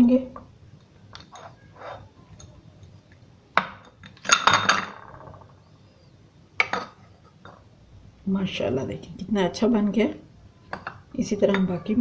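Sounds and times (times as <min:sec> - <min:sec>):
knife scraping ceramic bowl: 0:01.2 - 0:02.1.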